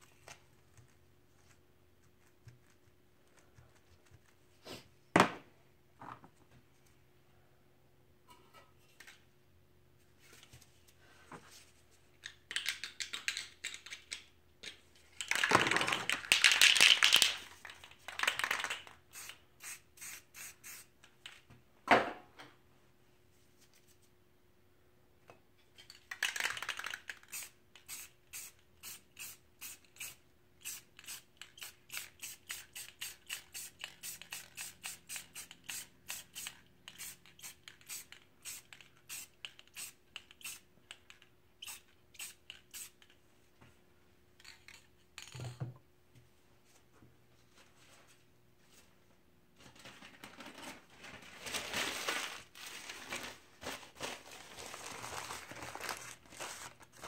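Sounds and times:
spray can hissing: 0:19.1 - 0:20.9, 0:27.2 - 0:40.6, 0:41.6 - 0:43.0.

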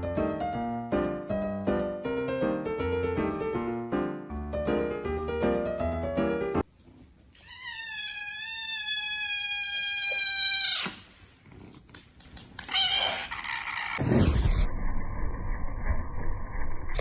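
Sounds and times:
piano music: 0:00.0 - 0:06.7
kitten meowing: 0:07.4 - 0:11.0.

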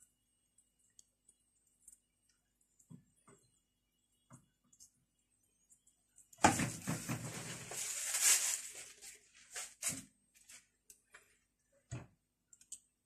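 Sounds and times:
rustling and rattling in a pan: 0:06.4 - 0:11.3.

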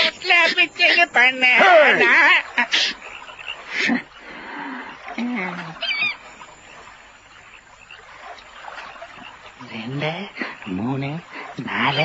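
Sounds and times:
warbling high chirp: 0:00.0 - 0:04.2, 0:04.8 - 0:10.0
waterfowl honking: 0:00.0 - 0:12.0.

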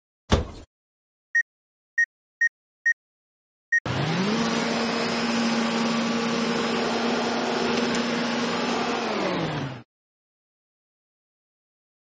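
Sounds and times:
photocopier motor humming: 0:03.9 - 0:09.8.

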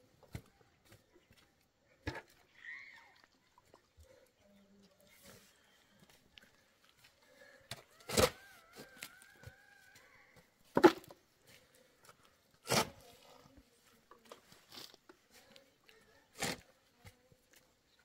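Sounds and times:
shovel scraping into stony soil: 0:12.6 - 0:13.2, 0:16.3 - 0:16.8.

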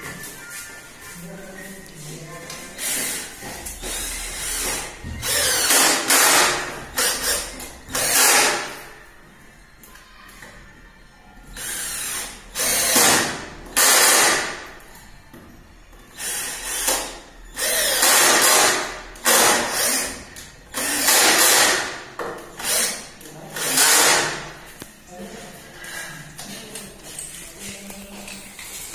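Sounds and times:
cordless drill bursts: 0:04.0 - 0:08.8, 0:11.6 - 0:14.6, 0:16.1 - 0:21.9, 0:22.6 - 0:24.4.

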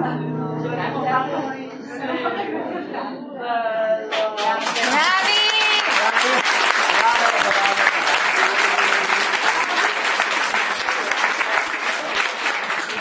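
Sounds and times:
group clapping: 0:04.1 - 0:13.0.

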